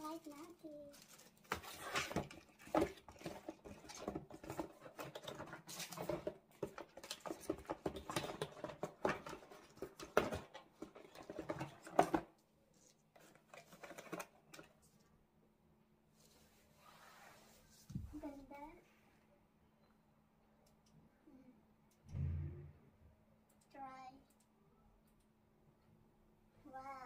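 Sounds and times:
rustling and tapping of handling: 0.0 - 15.1.

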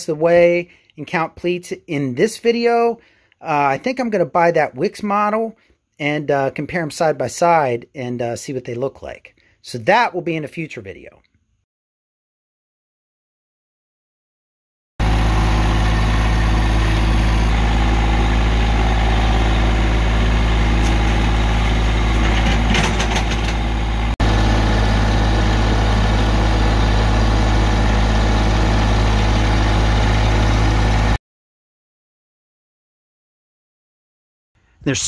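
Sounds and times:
tractor diesel engine running: 15.0 - 31.2.

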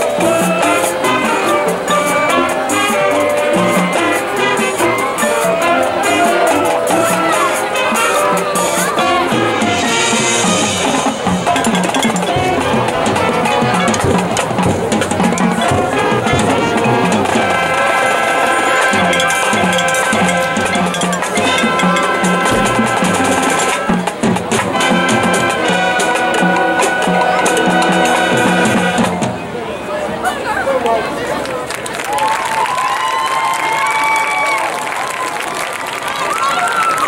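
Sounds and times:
drum strokes: 0.0 - 29.6
held brass chords: 0.0 - 29.6
marching band playing: 0.0 - 30.2.

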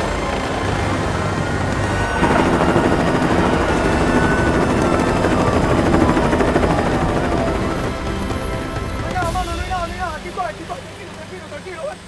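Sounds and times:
helicopter rotor chop: 0.4 - 11.9
faint falling whine: 2.1 - 8.0.

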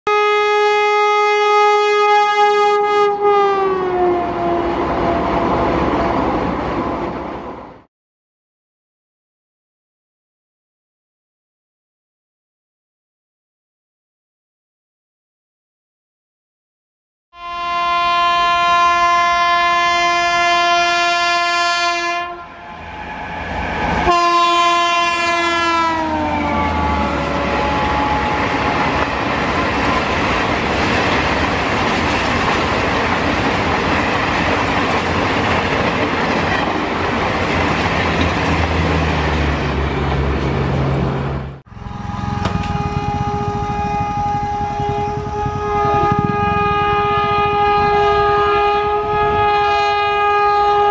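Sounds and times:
locomotive horn blast: 0.1 - 5.6, 17.4 - 29.2, 41.7 - 50.9
train coaches rushing past: 22.5 - 46.4.

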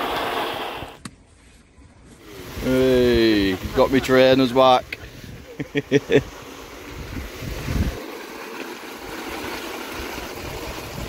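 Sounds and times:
hose water splashing into pond: 0.0 - 1.0, 2.0 - 11.0
person laughing: 5.0 - 6.3.

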